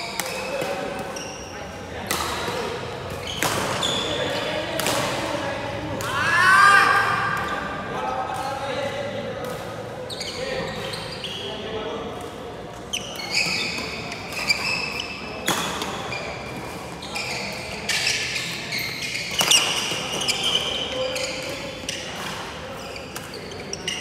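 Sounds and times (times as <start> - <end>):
sneakers squeaking on wooden floor: 0.0 - 1.5, 2.3 - 4.5, 10.0 - 11.6, 12.9 - 24.0
rackets hitting shuttlecock: 0.1 - 1.2, 1.9 - 6.3.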